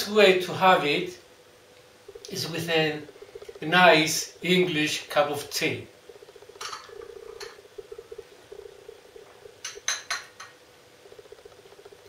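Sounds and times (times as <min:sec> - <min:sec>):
steady buzzing hum: 0:00.0 - 0:12.0
person sipping: 0:02.0 - 0:04.4, 0:06.1 - 0:10.5.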